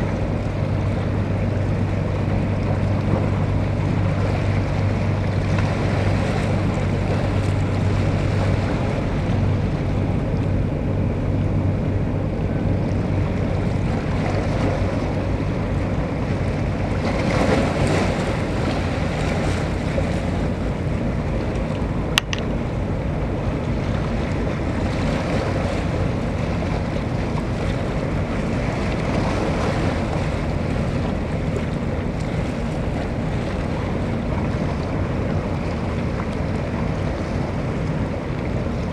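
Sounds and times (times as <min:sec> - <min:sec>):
low engine hum: 0:00.0 - 0:38.9
sharp click: 0:22.2 - 0:22.5.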